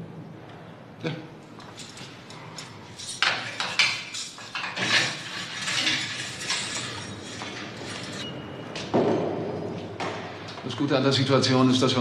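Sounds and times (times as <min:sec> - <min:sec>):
metal clinking and rattling: 0:01.6 - 0:08.3.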